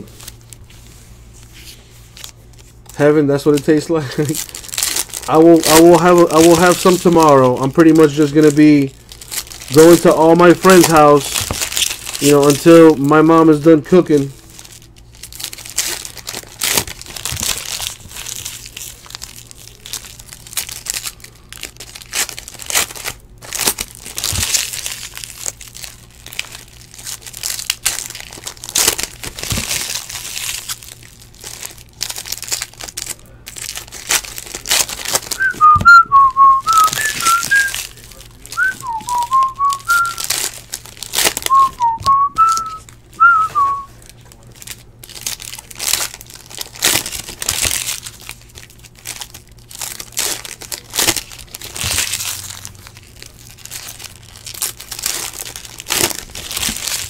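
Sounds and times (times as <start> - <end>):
foil wrappers crinkling: 0.0 - 57.0
person whistling a tune: 35.4 - 37.8, 38.6 - 40.2, 41.5 - 43.9.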